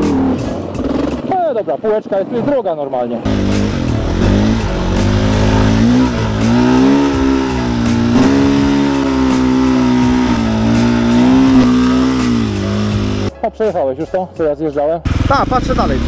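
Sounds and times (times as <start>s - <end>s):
motorcycle engine revving: 0.0s - 1.3s, 3.2s - 13.3s, 15.0s - 16.0s.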